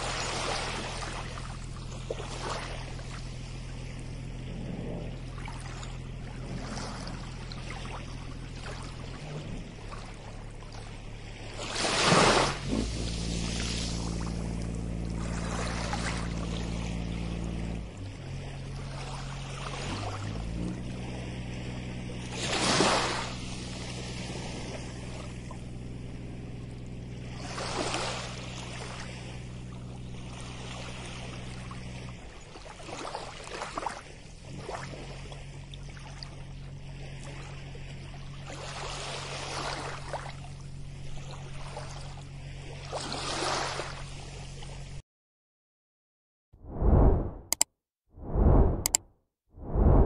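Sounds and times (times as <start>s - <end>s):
low hum: 0.0s - 11.9s, 12.5s - 42.9s, 46.6s - 49.0s, 49.6s - 50.0s
small waves washing onto sand: 9.8s - 17.0s, 17.9s - 25.3s, 30.2s - 44.5s.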